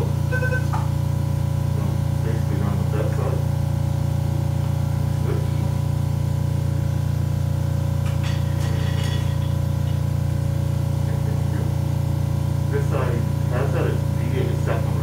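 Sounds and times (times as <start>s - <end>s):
loud steady low hum: 0.0s - 15.0s.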